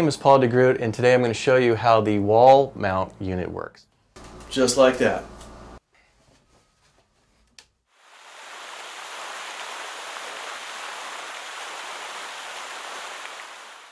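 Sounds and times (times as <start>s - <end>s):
steady rushing hiss: 8.0s - 13.9s.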